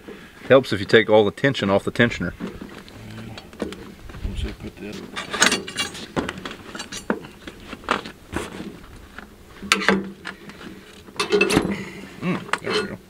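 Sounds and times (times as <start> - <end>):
metal tools clicking and clinking: 5.2 - 7.4, 11.2 - 11.8, 12.5 - 13.0.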